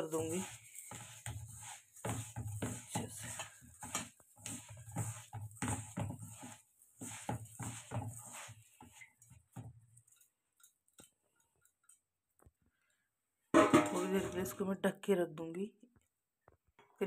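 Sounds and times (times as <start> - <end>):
grains stirred in steel bowl: 0.0 - 12.0, 13.6 - 14.7.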